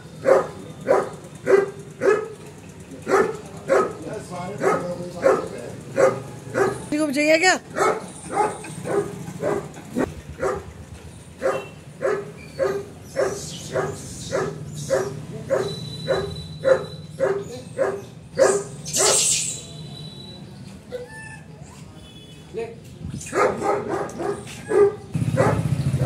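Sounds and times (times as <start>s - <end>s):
dog barking: 0.2s - 2.4s, 3.0s - 4.0s, 4.6s - 6.9s, 7.7s - 10.8s, 11.4s - 19.2s, 23.3s - 25.8s.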